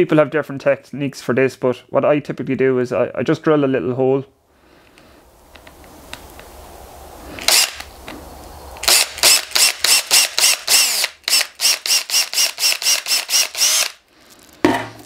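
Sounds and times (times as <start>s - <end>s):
cordless drill whirring in bursts: 7.4s - 7.9s, 8.8s - 14.0s.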